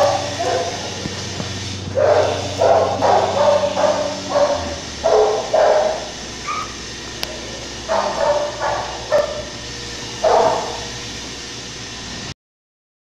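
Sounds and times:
dog barking: 0.0s - 1.2s, 1.9s - 11.0s
low steady hum: 0.0s - 12.0s.

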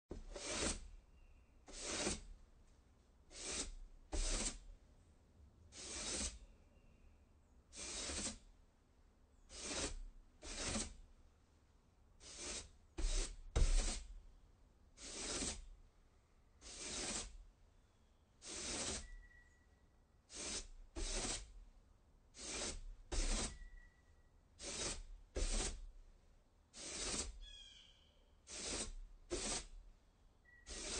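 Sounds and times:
broom sweeping wooden porch: 0.1s - 2.6s, 3.2s - 4.7s, 5.7s - 6.7s, 7.7s - 8.5s, 9.4s - 11.1s, 12.2s - 14.2s, 14.9s - 15.8s, 16.5s - 17.5s, 18.4s - 19.5s, 20.2s - 21.6s, 22.3s - 23.9s, 24.5s - 26.0s, 26.6s - 30.9s.

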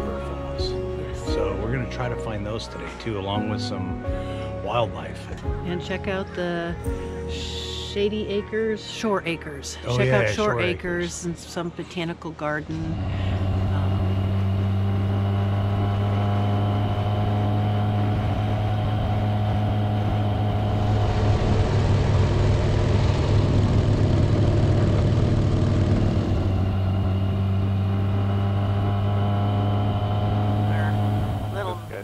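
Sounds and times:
motorcycle engine cruising: 12.8s - 32.0s
rushing noise: 13.0s - 32.0s.

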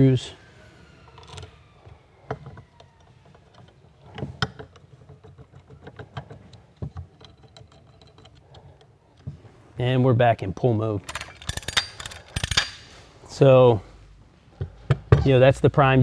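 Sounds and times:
metal parts clicking and knocking: 2.2s - 9.3s, 11.0s - 12.9s.

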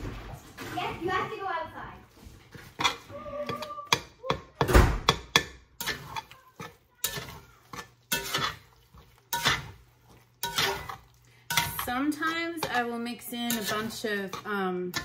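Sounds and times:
fork scraping a skillet: 2.5s - 4.1s, 5.1s - 15.0s.

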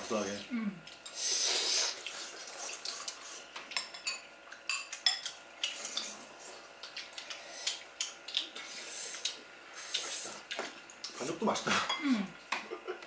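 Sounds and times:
spoons clinking against bowls: 3.8s - 5.4s.

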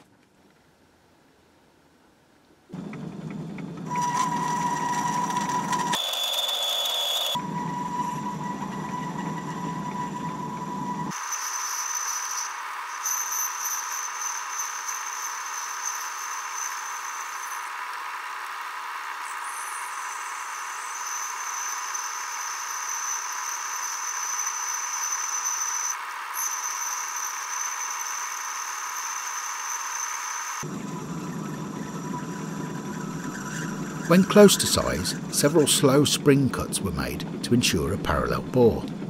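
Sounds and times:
lathe boring metal whine: 2.8s - 18.2s, 19.2s - 39.0s.

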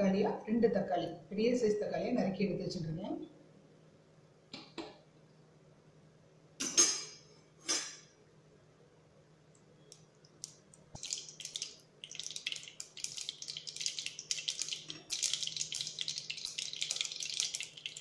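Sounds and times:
seeds crackling in hot oil: 9.6s - 18.0s.

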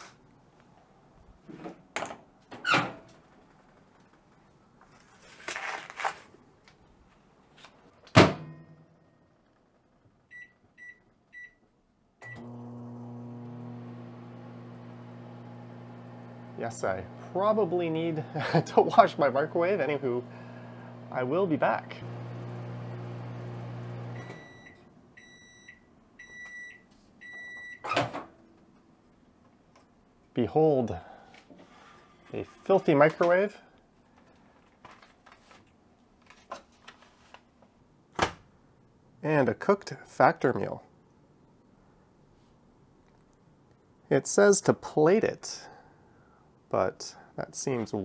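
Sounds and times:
microwave beeps: 10.3s - 11.6s, 12.2s - 16.6s, 22.2s - 27.9s
microwave running hum: 12.2s - 24.8s.

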